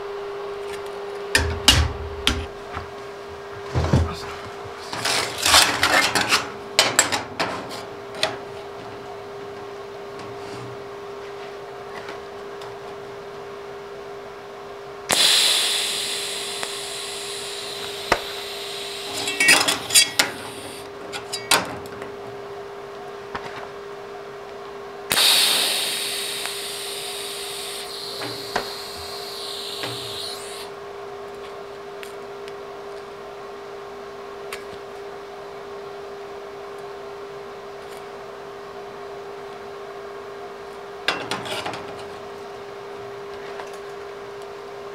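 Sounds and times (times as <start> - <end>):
steady hum: 0.0 - 5.9, 14.8 - 21.6, 24.9 - 31.0
welding arc crackling hiss: 15.1 - 20.9, 25.1 - 30.7.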